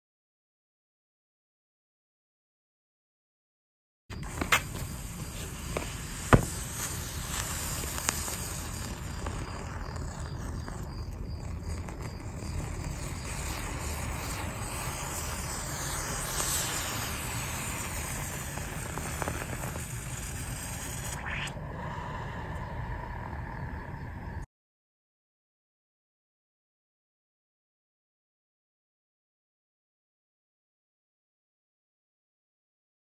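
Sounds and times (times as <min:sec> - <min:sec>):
sharp pop: 0:04.2 - 0:07.4
hissing fizz with crackles: 0:04.2 - 0:21.9.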